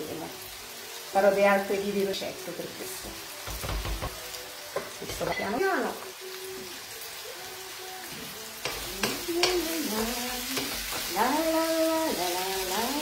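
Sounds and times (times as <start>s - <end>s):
artichokes sizzling in a wok: 0.0s - 13.0s
slow sung melody: 2.9s - 13.0s
wooden spoon knocking pan: 3.4s - 4.2s.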